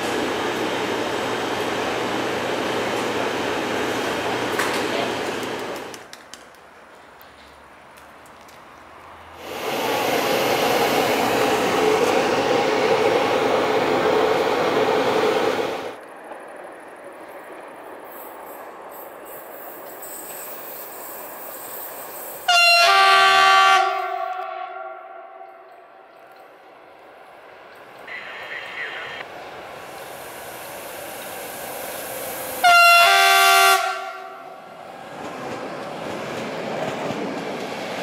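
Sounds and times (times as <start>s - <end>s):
locomotive horn chord: 22.5s - 25.7s, 32.6s - 34.5s.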